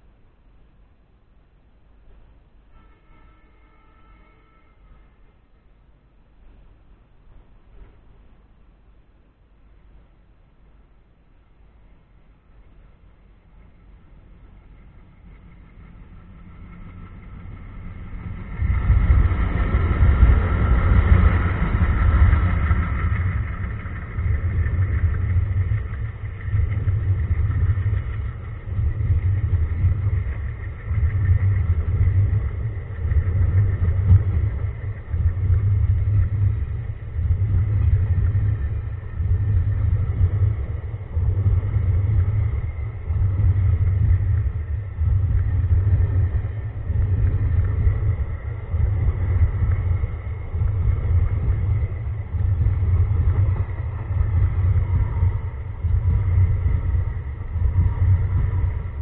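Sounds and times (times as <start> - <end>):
train wheels rumbling on rails: 11.5 - 59.0
diesel locomotives chugging: 12.3 - 59.0.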